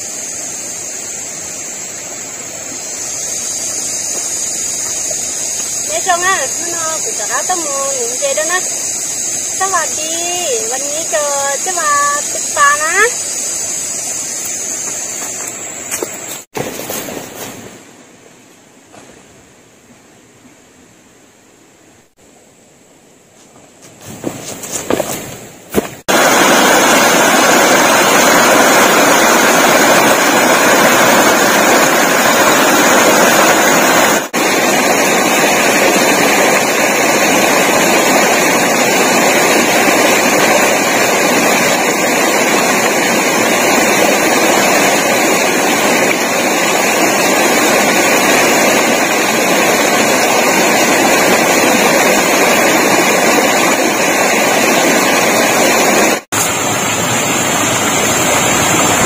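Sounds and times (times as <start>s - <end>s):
stream water rushing over rocks: 24.0s - 59.0s.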